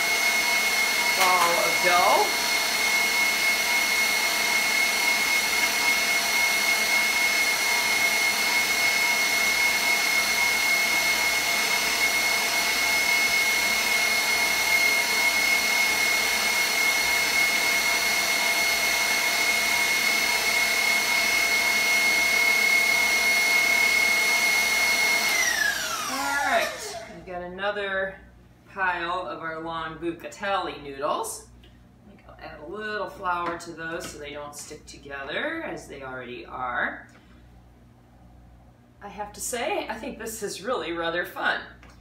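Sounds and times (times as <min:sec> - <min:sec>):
stand mixer motor whining: 0:00.0 - 0:27.2.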